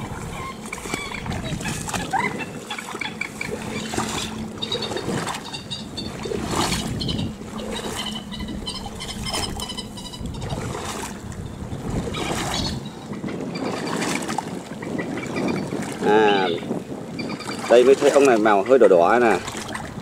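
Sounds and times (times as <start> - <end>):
wading through water: 0.0 - 20.0
high bird chirps: 4.6 - 10.6.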